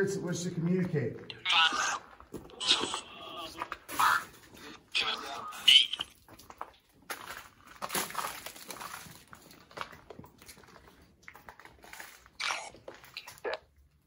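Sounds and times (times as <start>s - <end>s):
footfalls on littered floor: 6.1s - 13.1s.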